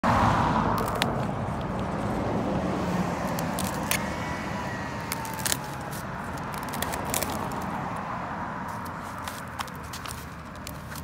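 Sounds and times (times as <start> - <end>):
dog chewing dry palm frond: 3.2 - 4.1, 5.0 - 7.7, 8.7 - 11.0.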